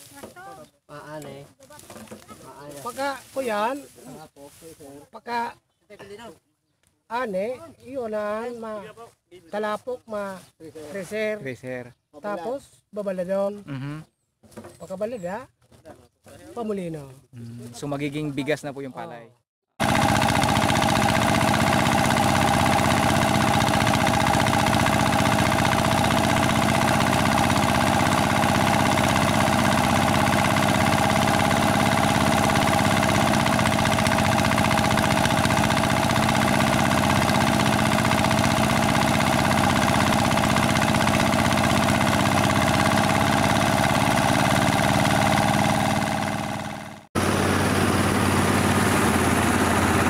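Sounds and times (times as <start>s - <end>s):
small engine running: 19.8s - 50.0s.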